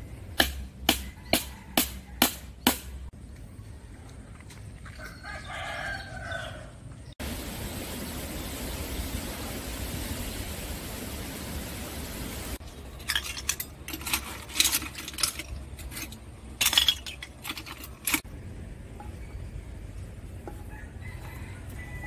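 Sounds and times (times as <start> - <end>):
rushing outdoor noise: 0.0 - 22.0
metal spoon clinking on shells: 12.6 - 18.2.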